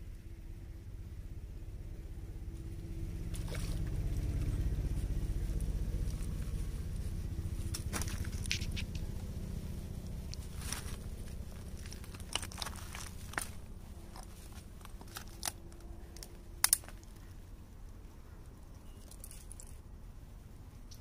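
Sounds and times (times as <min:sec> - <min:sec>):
low steady rumble: 0:00.0 - 0:21.0
handling clicks and crackles: 0:07.6 - 0:09.4, 0:10.1 - 0:17.4, 0:18.7 - 0:19.9.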